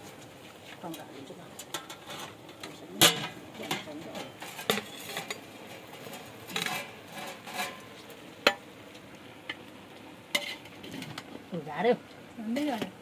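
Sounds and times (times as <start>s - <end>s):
metal spoon scraping a pot: 1.6s - 8.1s, 10.3s - 11.3s.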